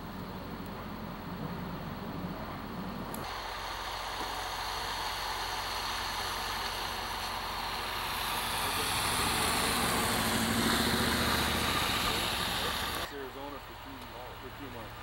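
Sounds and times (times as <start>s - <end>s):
vehicle engine idling: 0.0s - 15.0s
wash of noise: 3.2s - 13.1s.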